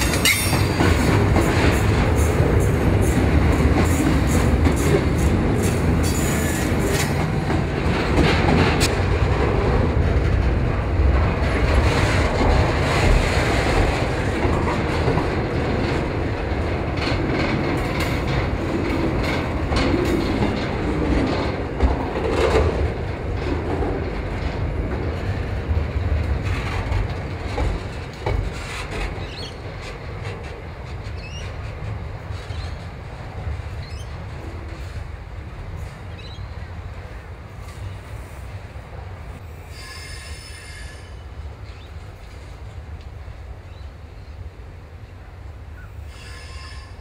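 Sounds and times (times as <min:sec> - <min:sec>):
wheels clacking over rail joints: 0:00.0 - 0:38.0
train wheels rumbling on rail: 0:00.0 - 0:47.0.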